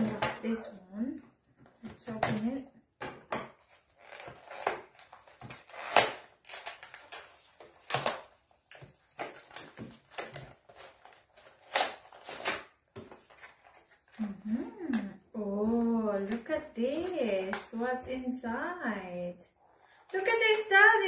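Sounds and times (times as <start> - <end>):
cardboard rustling and tearing: 3.6 - 14.4.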